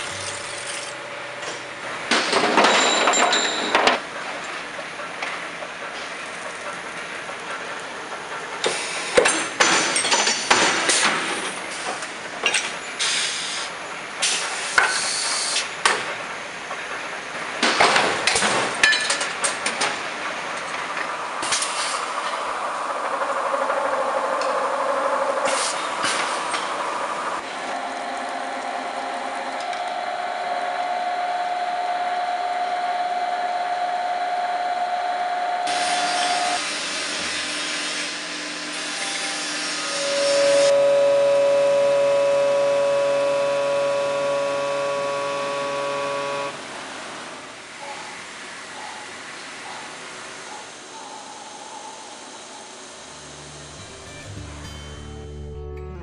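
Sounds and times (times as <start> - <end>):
machines humming: 22.0 - 46.6, 52.1 - 56.0
lathe cutting hiss: 35.7 - 40.8.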